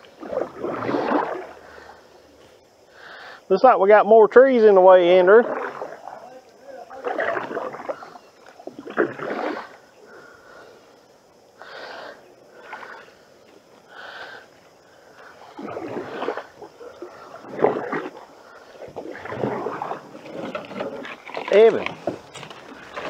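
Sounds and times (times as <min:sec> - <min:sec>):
paddle splashing in water: 0:00.0 - 0:02.6, 0:05.0 - 0:10.7, 0:12.5 - 0:14.0, 0:15.1 - 0:23.0.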